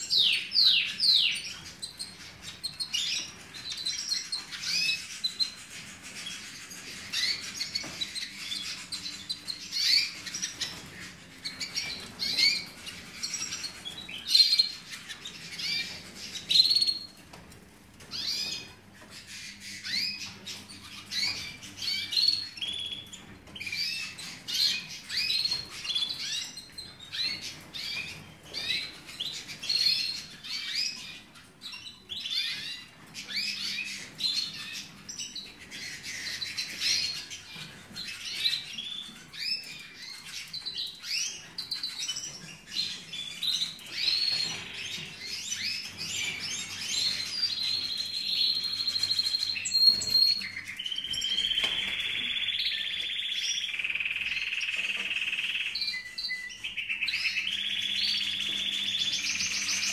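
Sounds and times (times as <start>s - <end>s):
canaries chirping: 0.0s - 59.9s
canary singing rolling trills: 0.0s - 59.9s.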